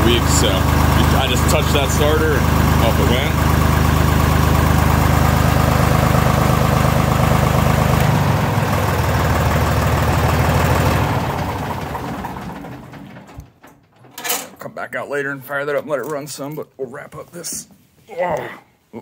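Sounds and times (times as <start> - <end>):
diesel engine idling: 0.0 - 13.4.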